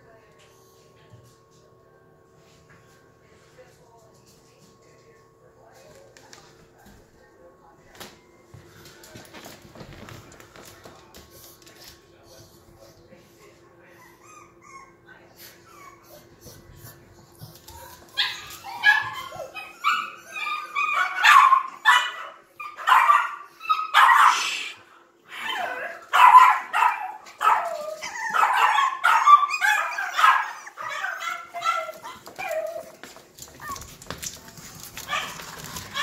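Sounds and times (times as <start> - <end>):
puppy yapping and whining: 18.2 - 21.9, 25.4 - 32.9.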